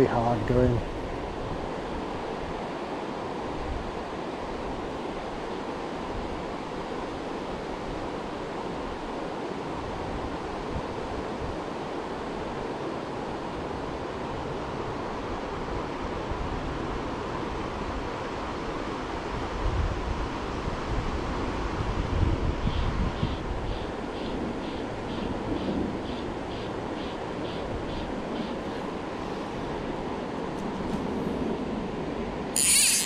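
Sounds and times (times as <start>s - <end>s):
wind buffeting microphone: 19.5s - 24.6s.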